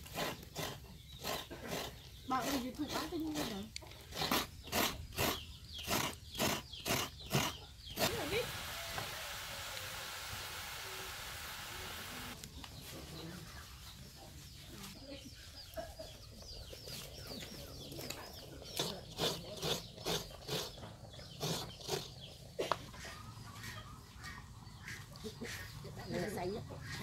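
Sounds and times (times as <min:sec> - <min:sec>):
chickens chirping: 0:00.2 - 0:10.0, 0:10.8 - 0:27.0
pot boiling hard: 0:04.3 - 0:12.4
chickens clucking: 0:11.8 - 0:27.0.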